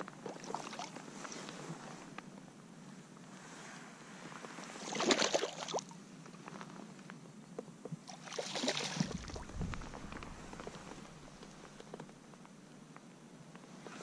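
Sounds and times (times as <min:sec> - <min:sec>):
water splashing against kayak: 0:08.1 - 0:12.2.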